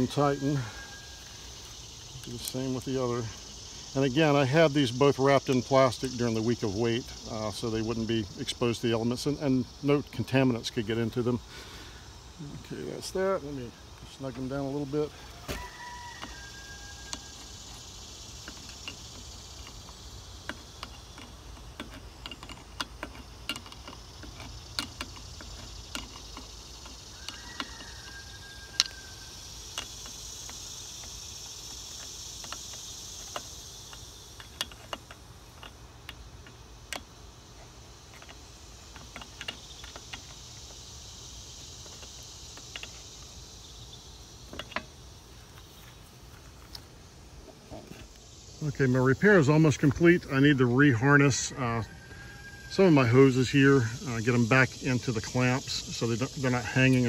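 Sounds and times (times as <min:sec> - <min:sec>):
wrench tapping on metal fittings: 0:18.4 - 0:29.0, 0:29.7 - 0:37.1.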